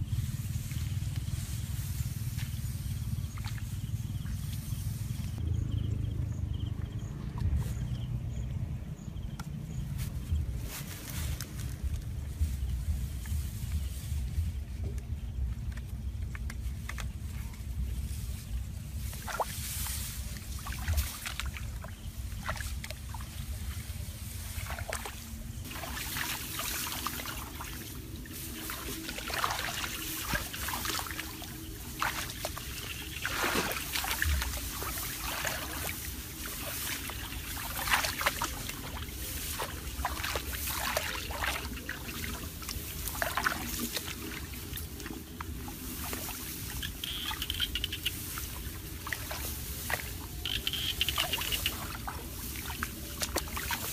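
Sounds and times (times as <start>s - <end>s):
water sloshing and trickling: 0.0s - 9.1s, 9.7s - 53.9s
small water splashes: 19.0s - 53.9s.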